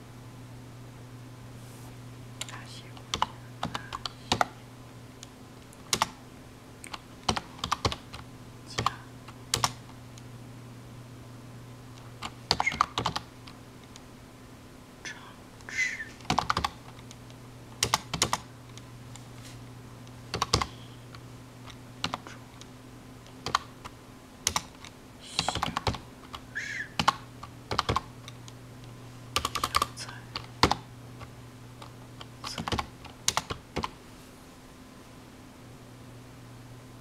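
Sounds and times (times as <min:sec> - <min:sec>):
low steady hum: 0:00.0 - 0:37.0
typing on computer keyboard: 0:05.9 - 0:06.2, 0:06.9 - 0:08.2, 0:08.8 - 0:09.8, 0:12.2 - 0:13.3, 0:16.2 - 0:17.1, 0:17.8 - 0:18.5, 0:20.3 - 0:20.7, 0:23.4 - 0:23.7, 0:24.4 - 0:26.4, 0:27.0 - 0:28.1, 0:29.4 - 0:30.8, 0:32.2 - 0:34.0.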